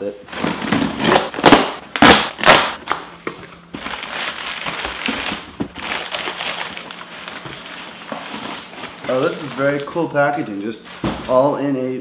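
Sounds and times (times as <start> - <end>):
cardboard box tearing open: 0.3 - 2.8
packing paper rustling: 0.3 - 11.5.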